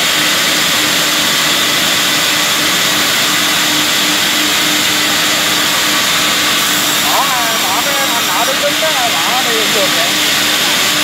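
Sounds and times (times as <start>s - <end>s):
faint broken hum: 0.0s - 11.0s
woodworking machinery whirring: 0.0s - 11.0s.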